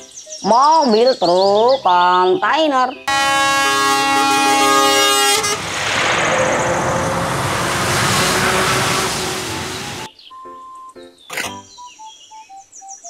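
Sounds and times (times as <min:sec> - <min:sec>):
heavy truck driving past: 0:03.1 - 0:10.1
truck air horn blast: 0:03.1 - 0:10.1.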